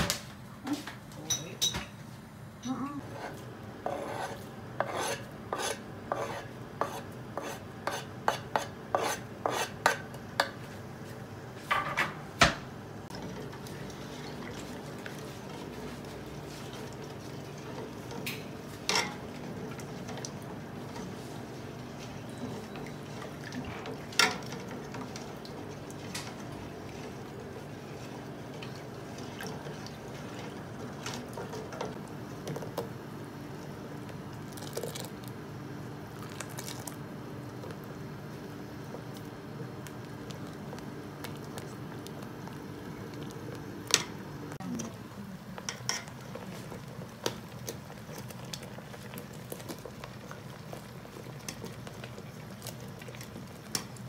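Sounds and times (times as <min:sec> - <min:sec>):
spoon stirring liquid in pot: 0:03.1 - 0:10.7, 0:13.1 - 0:32.8, 0:45.6 - 0:54.0.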